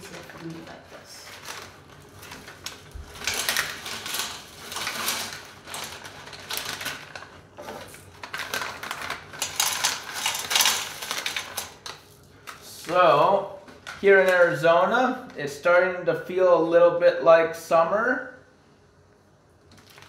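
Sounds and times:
plastic pouches crinkling and tearing: 0:00.0 - 0:13.0, 0:19.6 - 0:20.0.

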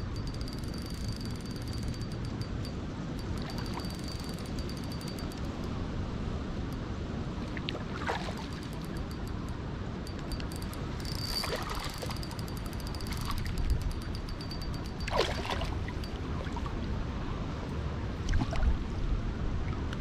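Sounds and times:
faint fast high ticking: 0:00.0 - 0:05.8, 0:08.3 - 0:16.2
river water: 0:00.0 - 0:20.0.

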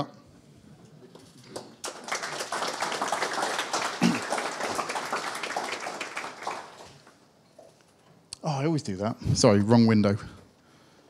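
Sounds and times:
audience applauding: 0:01.5 - 0:07.2.

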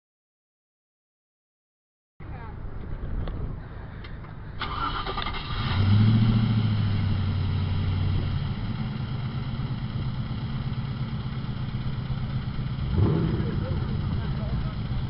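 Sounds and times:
car engine idling: 0:04.0 - 0:15.0
engine starter cranking: 0:04.6 - 0:06.0.

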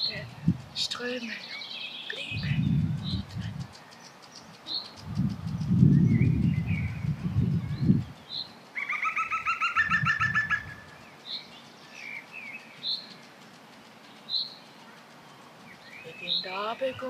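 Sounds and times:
songbird chirps: 0:00.0 - 0:17.0
low muffled rumble: 0:02.3 - 0:03.7, 0:05.0 - 0:08.1.

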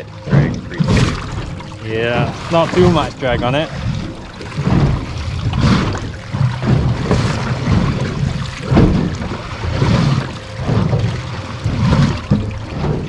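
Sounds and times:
water slapping boat hull: 0:00.0 - 0:13.0
wind buffeting microphone: 0:00.0 - 0:13.0.

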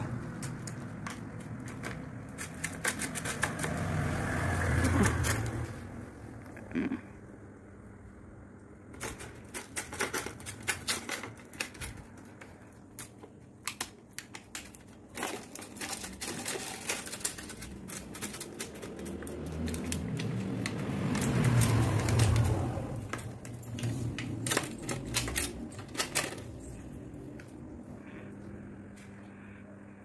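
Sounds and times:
dog eating from foil tray: 0:09.0 - 0:26.6
low hum: 0:21.8 - 0:30.0.

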